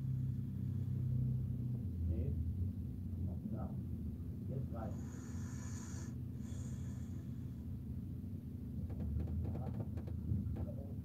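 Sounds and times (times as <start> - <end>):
van engine hum: 0.0 - 5.6.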